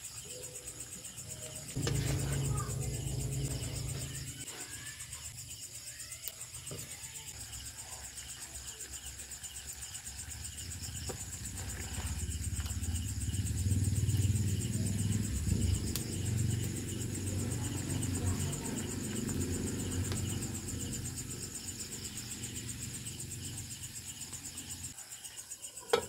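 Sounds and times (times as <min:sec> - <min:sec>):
crickets chirping: 0:00.0 - 0:26.0
low rumble: 0:01.8 - 0:04.5.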